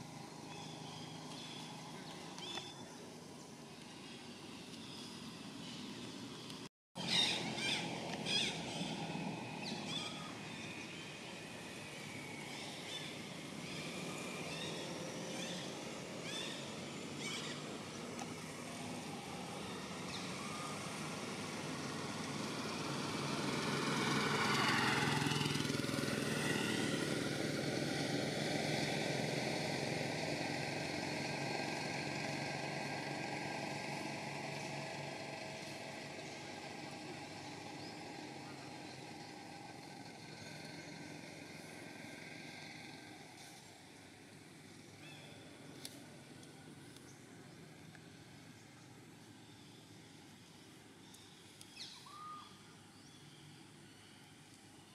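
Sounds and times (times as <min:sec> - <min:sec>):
motor vehicle passing: 0:07.0 - 0:50.7.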